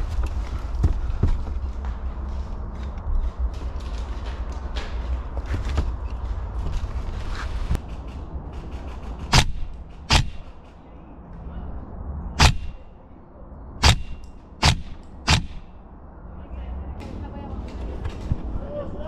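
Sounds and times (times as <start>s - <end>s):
airsoft rifle shots: 9.2s - 10.6s, 12.4s - 12.9s, 13.8s - 15.8s.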